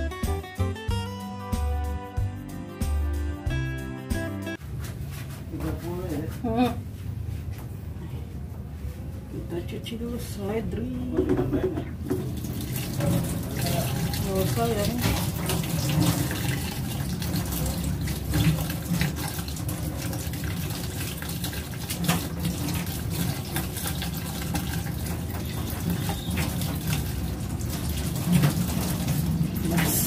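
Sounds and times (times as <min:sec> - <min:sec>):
tap running into metal sink: 0:11.2 - 0:30.0
clicks and splashes: 0:12.0 - 0:30.0.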